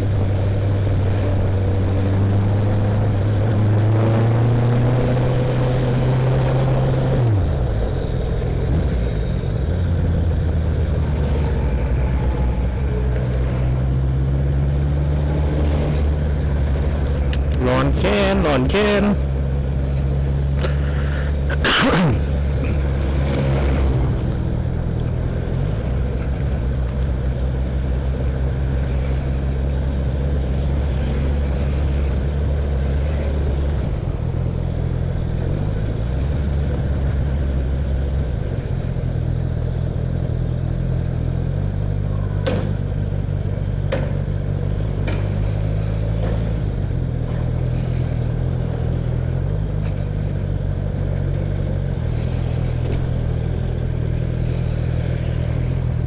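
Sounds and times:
motorcycle engine droning: 0.0 - 56.0
road and wind noise: 0.0 - 56.0
loud sharp noise: 21.5 - 22.4.

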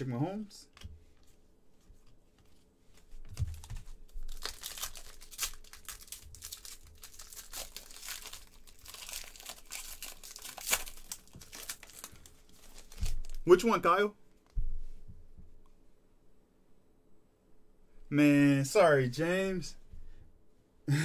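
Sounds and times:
foil wrappers tearing and crinkling: 3.4 - 13.4.

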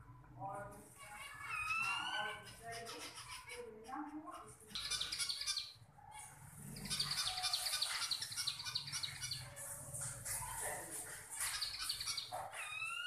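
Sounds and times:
finches chirping: 1.0 - 9.6, 11.4 - 13.0.

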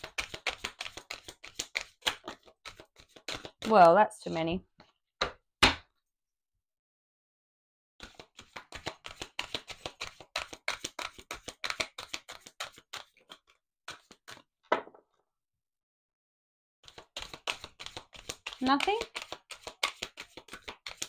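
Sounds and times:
cards tapping: 0.0 - 3.6, 8.0 - 14.4, 16.9 - 21.0
rapid card clicks: 0.0 - 3.6, 16.9 - 21.0.

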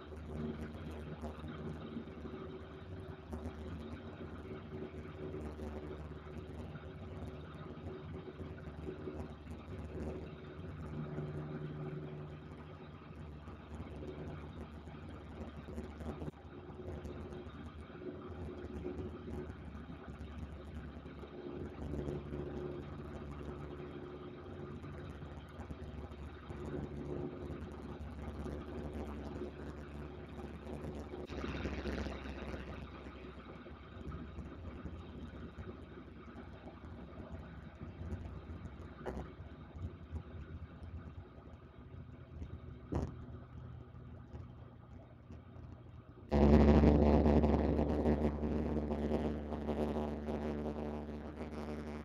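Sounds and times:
light aircraft engine droning: 0.0 - 52.0.

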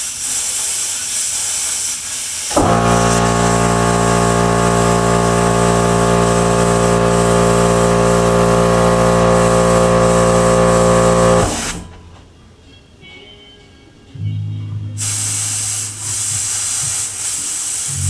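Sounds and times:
air hissing: 0.0 - 11.9, 15.0 - 18.0
air compressor humming: 2.2 - 12.2, 15.0 - 18.0.

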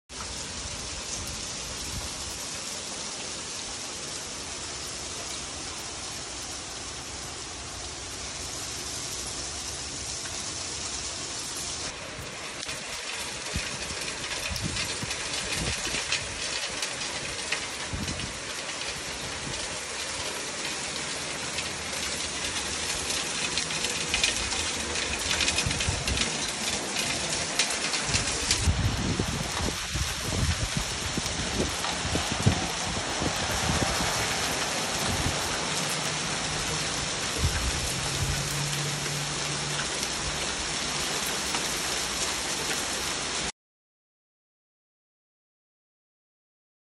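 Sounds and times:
hail hitting concrete and lawn: 0.1 - 43.5.

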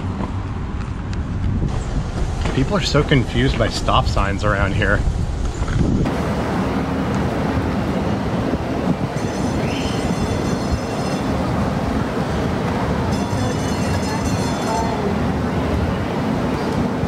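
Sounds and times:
train rumbling over track: 0.0 - 17.0
train wheels squealing: 9.2 - 11.5.

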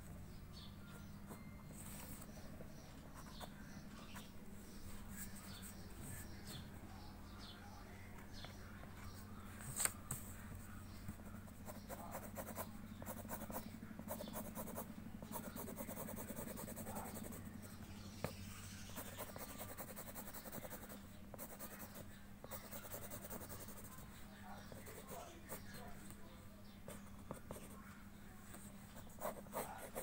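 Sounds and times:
pencil scratching on paper: 11.5 - 17.4, 18.2 - 24.1, 24.7 - 25.8, 26.9 - 27.8, 29.0 - 30.0.

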